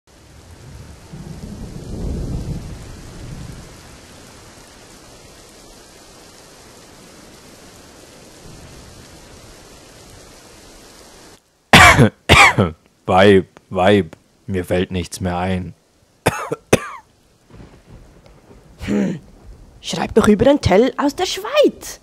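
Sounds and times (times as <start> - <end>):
thunder rumbling: 0.1 - 12.1, 17.2 - 22.0
rain hissing: 0.1 - 22.0.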